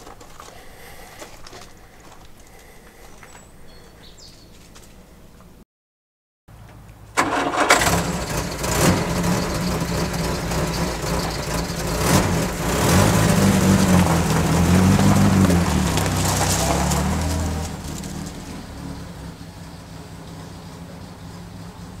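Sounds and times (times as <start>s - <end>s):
car engine starting and running: 6.5s - 22.0s.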